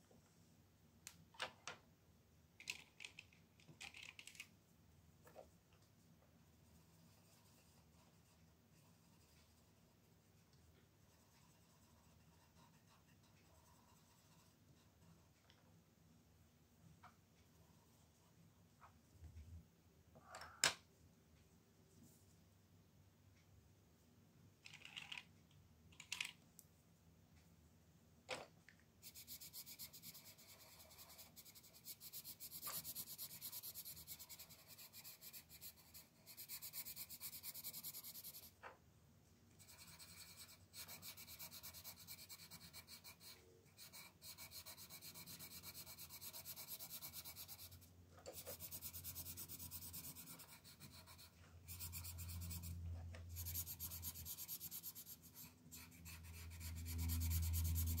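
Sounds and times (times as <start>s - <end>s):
pencil scratching on paper: 6.6s - 10.3s, 11.0s - 15.3s, 29.0s - 38.6s, 39.6s - 58.0s.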